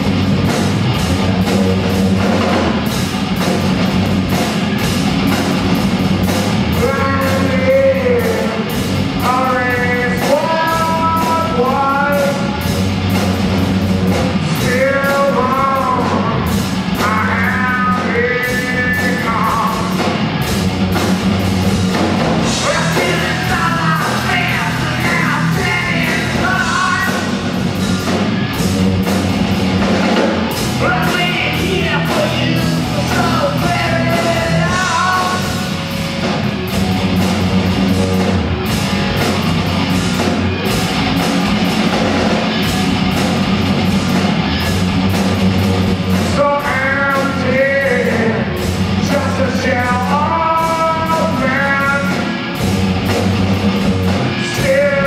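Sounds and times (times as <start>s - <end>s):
rock band playing live: 0.0s - 55.0s
lead vocal singing: 6.7s - 12.7s, 14.4s - 20.1s, 22.4s - 27.6s, 30.5s - 35.8s, 46.2s - 52.5s, 54.3s - 55.0s.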